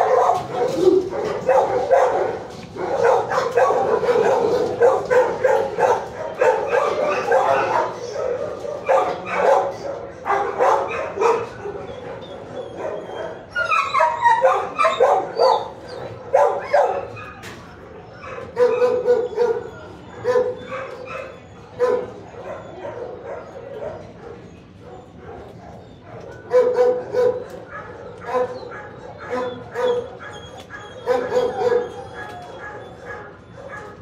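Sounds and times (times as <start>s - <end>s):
dogs barking and yipping: 0.0s - 34.0s
dog whining: 10.9s - 34.0s.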